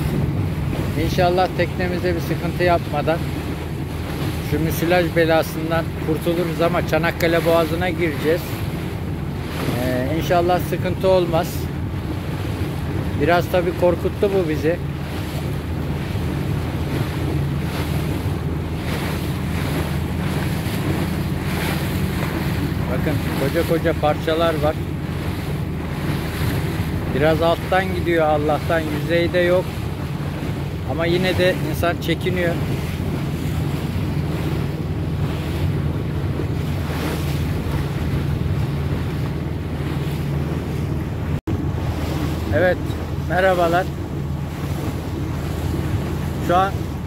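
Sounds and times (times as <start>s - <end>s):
boat engine droning: 0.0s - 47.0s
water rushing past hull: 0.0s - 47.0s
wind buffeting microphone: 0.0s - 47.0s.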